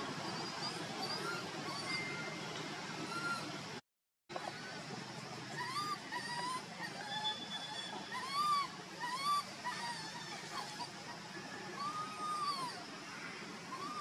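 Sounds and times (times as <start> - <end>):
baby monkey whimpering: 5.5 - 12.9, 13.7 - 14.0.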